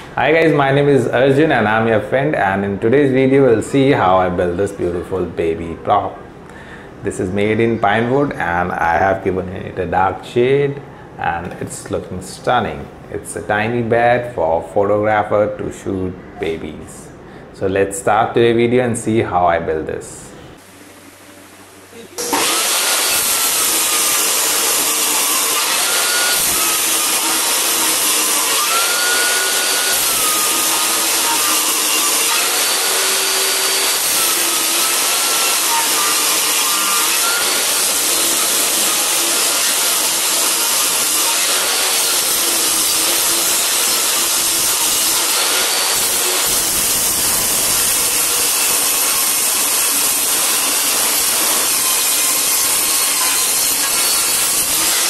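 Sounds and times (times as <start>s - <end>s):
table saw ripping wood: 22.2s - 55.0s.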